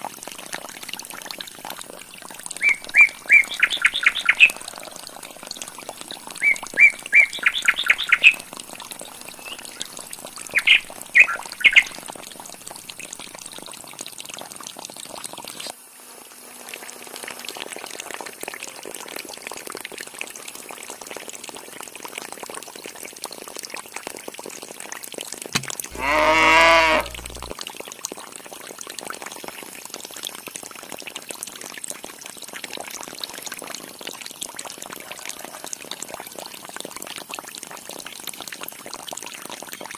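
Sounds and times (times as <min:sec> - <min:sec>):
water trickling into a tank: 0:00.0 - 0:39.9
wavering call: 0:25.6 - 0:27.5
birds chirping: 0:25.7 - 0:27.5.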